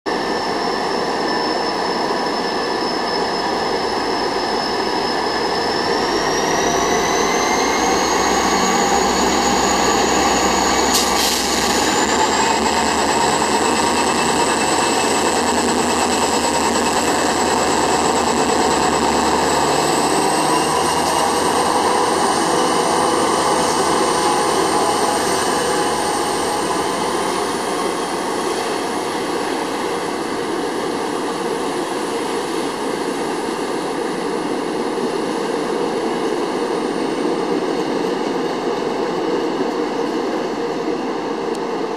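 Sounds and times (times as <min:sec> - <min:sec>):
high rising whine: 0:00.1 - 0:35.8
locomotive engine and rolling noise: 0:00.1 - 0:41.9
brief hiss: 0:10.9 - 0:11.8.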